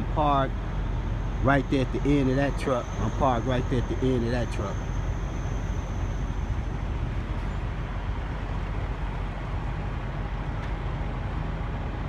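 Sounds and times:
diesel truck engine rumble: 0:00.0 - 0:12.0
road noise: 0:00.0 - 0:12.0.

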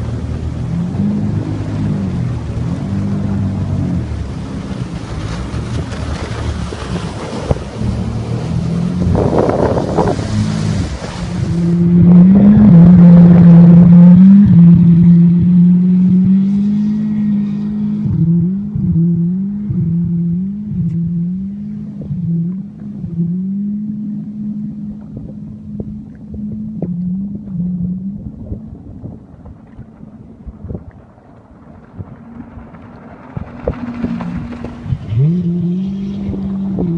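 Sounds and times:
watercraft engine droning: 0:00.0 - 0:36.9
wind and spray hissing: 0:04.8 - 0:11.6.

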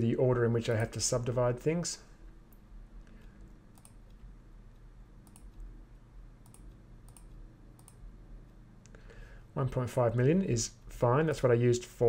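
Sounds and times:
low steady hum: 0:00.0 - 0:12.0
computer mouse clicks: 0:03.2 - 0:05.7, 0:06.4 - 0:08.0.

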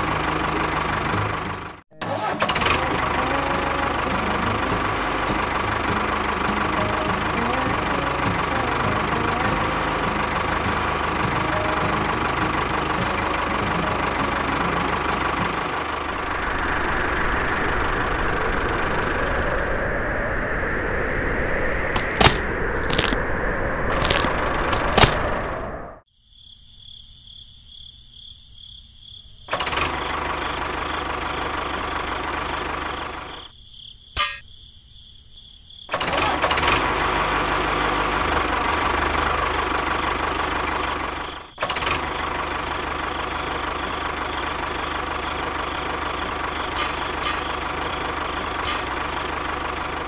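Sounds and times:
tractor engine running: 0:00.0 - 0:19.1, 0:22.0 - 0:23.2, 0:23.9 - 0:25.4, 0:29.5 - 0:33.5, 0:35.9 - 0:50.0.

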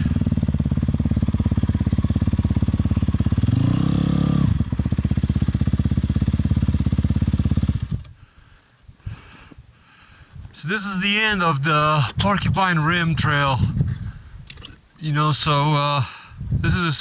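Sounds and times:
dirt bike engine idling: 0:00.0 - 0:08.8.

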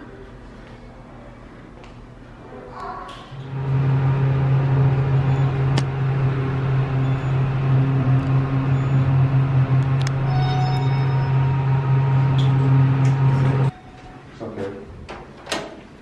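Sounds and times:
elevator low hum: 0:03.3 - 0:14.4.

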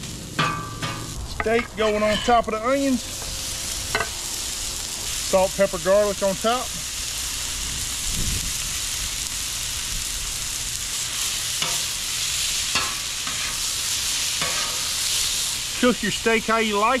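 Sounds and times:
steak and onions sizzling on griddle: 0:00.0 - 0:17.0.

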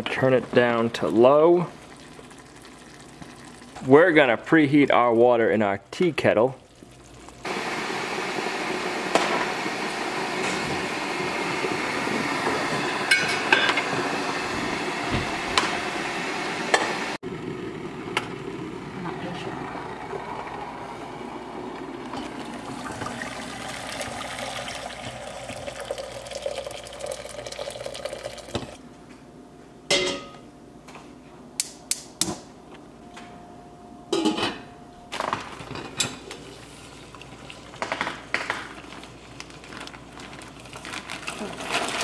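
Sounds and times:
hot water pouring into metal pot: 0:01.7 - 0:03.8, 0:22.0 - 0:28.8.

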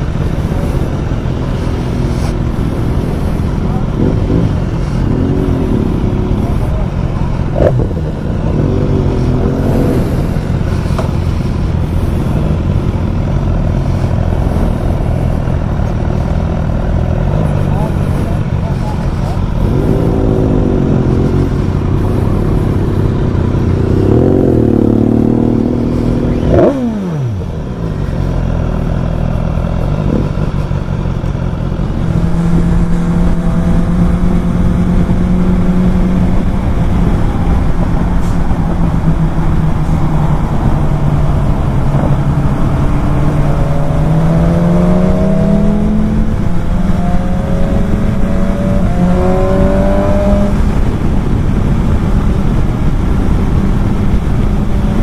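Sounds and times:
wind noise: 0:00.0 - 0:28.2, 0:29.7 - 0:55.0
motorcycle engine: 0:00.0 - 0:55.0.

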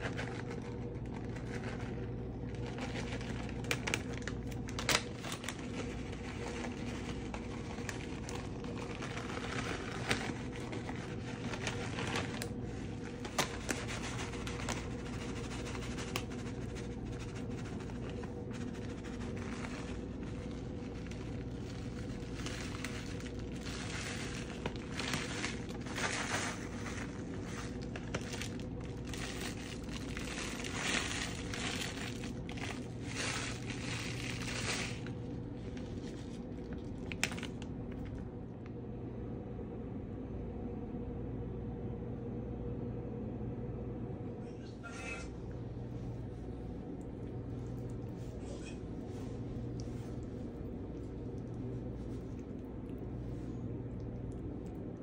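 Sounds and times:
plastic bag crinkling: 0:00.0 - 0:38.3
steady low hum: 0:00.0 - 0:55.0.

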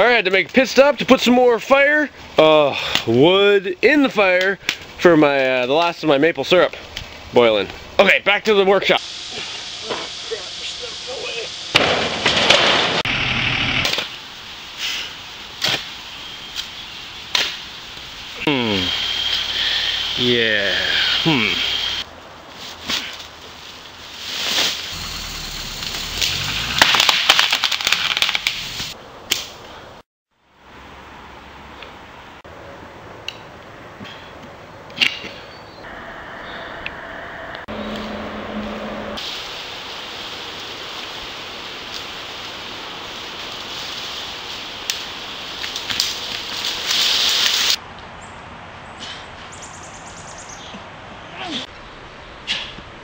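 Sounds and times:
outdoor background: 0:00.0 - 0:53.0
loud even hiss: 0:08.8 - 0:22.1, 0:23.9 - 0:27.1, 0:28.0 - 0:29.0, 0:39.2 - 0:47.8
leaves and sticks crunching under car: 0:13.9 - 0:29.0, 0:39.2 - 0:47.8
sharp cracks: 0:24.5 - 0:29.6
low rumble: 0:35.9 - 0:39.2.

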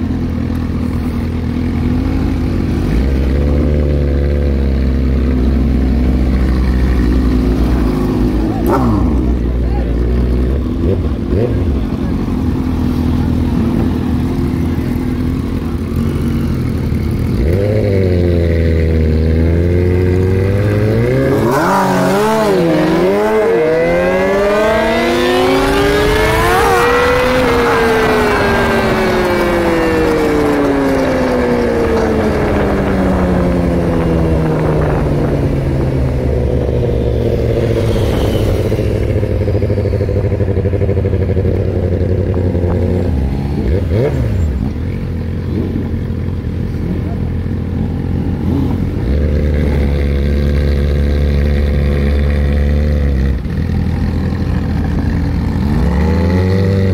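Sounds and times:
motorcycle engine revving: 0:00.0 - 0:56.9
wind rush: 0:21.7 - 0:40.4.

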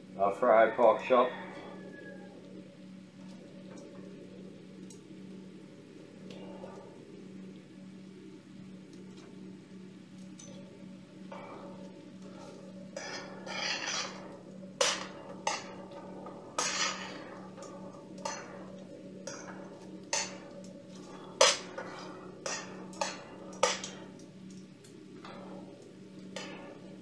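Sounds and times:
low steady hum: 0:00.0 - 0:27.0
metal tongs clinking on skillet: 0:20.1 - 0:20.5, 0:21.4 - 0:24.6.

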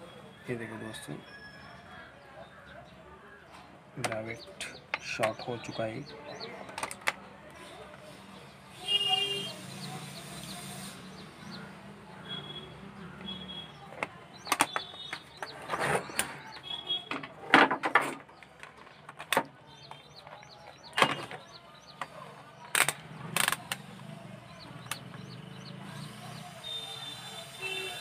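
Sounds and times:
clicks and knocks of tool handling: 0:06.6 - 0:07.2, 0:17.1 - 0:23.9.

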